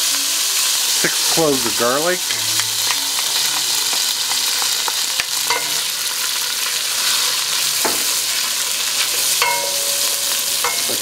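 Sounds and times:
garlic sizzling in oil: 0.0 - 11.0
wooden spoon knocking on pan: 7.8 - 8.1, 9.4 - 11.0.

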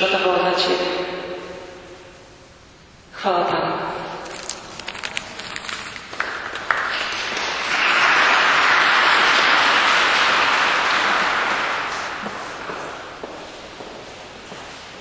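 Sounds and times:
audience applauding: 5.6 - 13.2.

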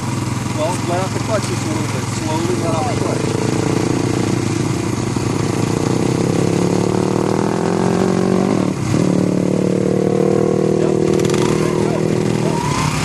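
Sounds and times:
dirt bike engine idling: 0.0 - 7.5.

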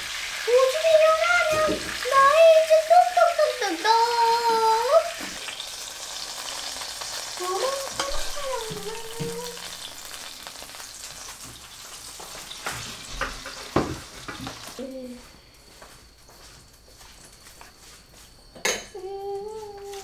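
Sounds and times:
food sizzling in a frying pan: 0.0 - 15.2.

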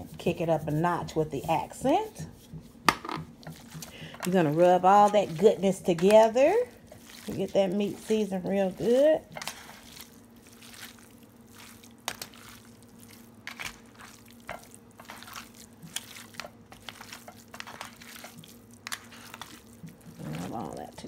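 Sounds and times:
faint steady hum: 0.0 - 21.0
hand squishing raw meat: 2.4 - 8.3, 9.3 - 20.8.

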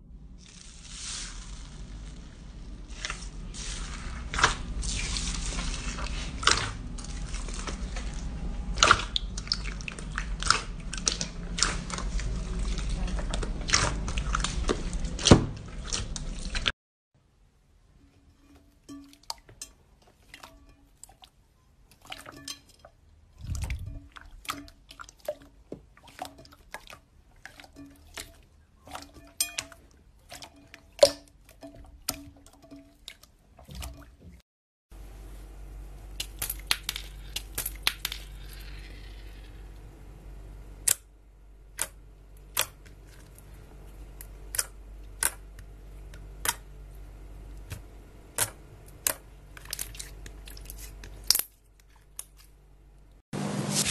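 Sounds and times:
low hum: 0.0 - 14.8.

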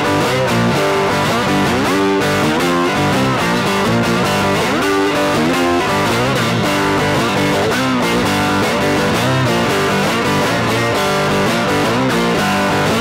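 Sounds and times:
blues guitar: 0.0 - 13.0.

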